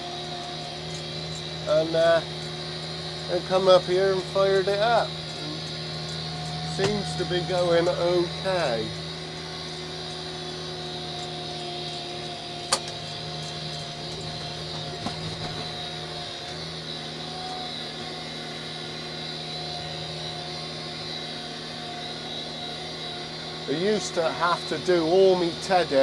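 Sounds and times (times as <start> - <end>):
tractor engine running: 0.0 - 17.5.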